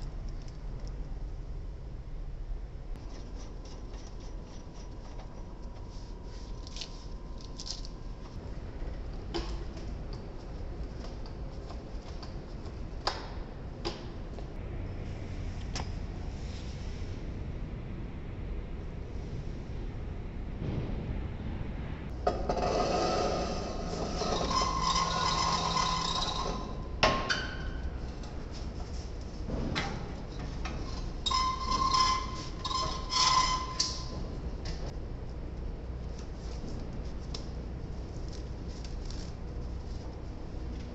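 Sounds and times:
steady low rumble: 0.0 - 3.9, 4.6 - 24.2, 34.0 - 40.9
metal scraping and clinking: 22.3 - 27.0.

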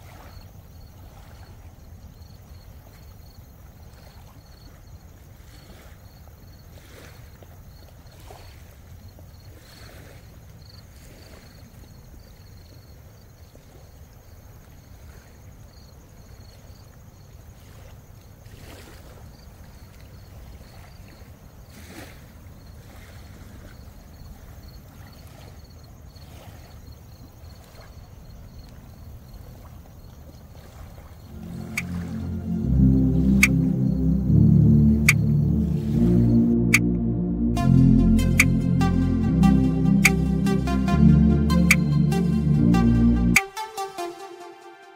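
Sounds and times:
low rumble: 31.3 - 43.4.

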